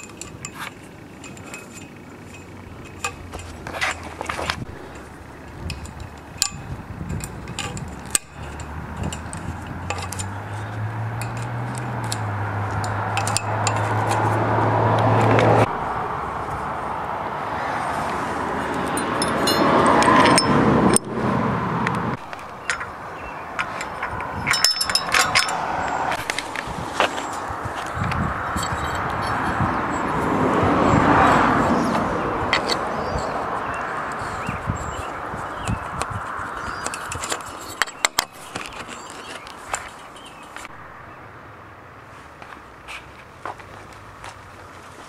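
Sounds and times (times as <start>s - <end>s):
metal fence fittings clinking: 0.0s - 15.6s, 18.6s - 21.1s, 22.2s - 30.3s, 31.7s - 40.7s
low hum: 0.0s - 34.3s.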